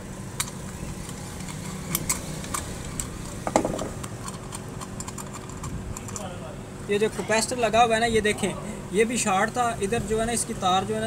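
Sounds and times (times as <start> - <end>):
steady low hum: 0.0 - 11.0
screwdriver tapping metal cover: 1.4 - 6.3.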